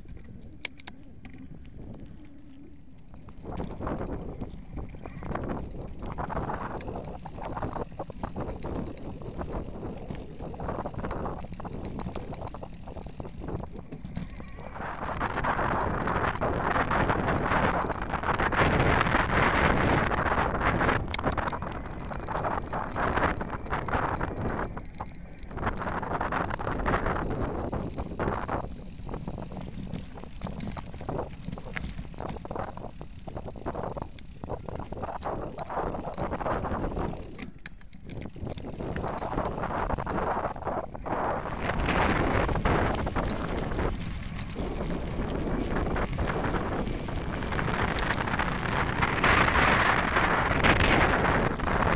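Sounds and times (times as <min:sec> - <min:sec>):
bike rattling over bumps: 0:00.0 - 0:51.9
bike tyres crunching on gravel: 0:00.0 - 0:51.9
wind buffeting microphone: 0:00.0 - 0:51.9.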